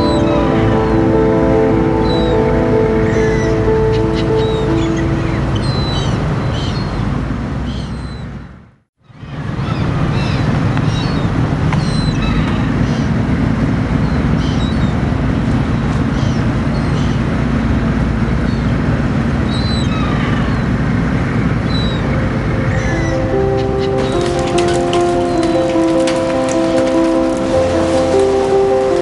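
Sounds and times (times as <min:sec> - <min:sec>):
music: 0:00.0 - 0:06.1, 0:21.7 - 0:29.0
seagulls calling: 0:00.0 - 0:08.3, 0:09.2 - 0:18.8, 0:19.5 - 0:29.0
boat engine rumbling: 0:00.0 - 0:29.0.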